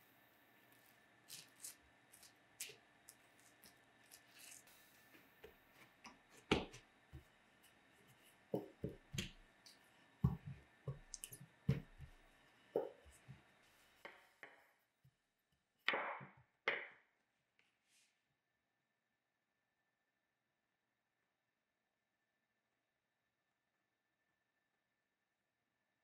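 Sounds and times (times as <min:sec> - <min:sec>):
rolling pin knocking on mat: 0:06.5 - 0:06.8, 0:10.2 - 0:11.1, 0:11.7 - 0:12.2.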